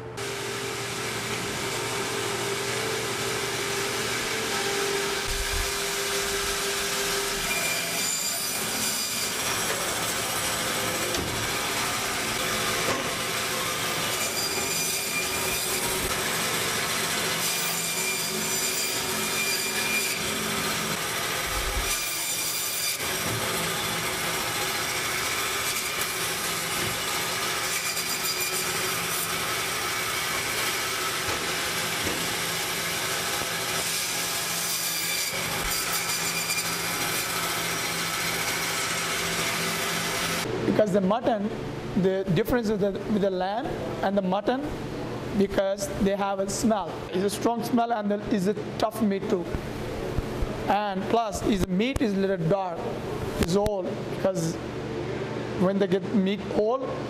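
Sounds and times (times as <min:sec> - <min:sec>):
band saw motor hum: 0:00.0 - 0:40.7.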